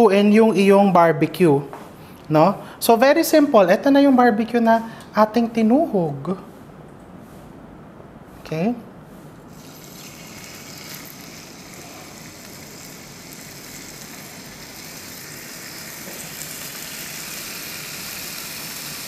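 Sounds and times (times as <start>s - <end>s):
meat skewers sizzling on griddle: 9.5s - 19.0s.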